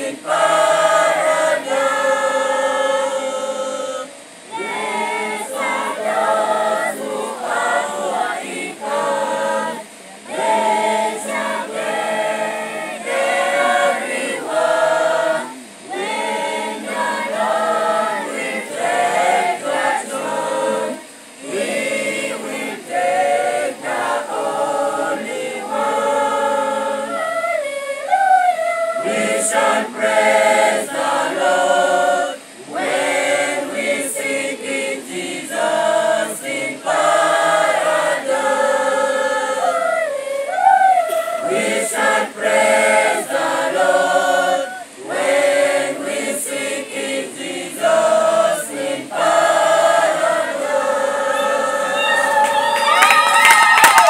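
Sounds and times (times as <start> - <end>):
mixed choir singing a cappella: 0.0 - 52.8.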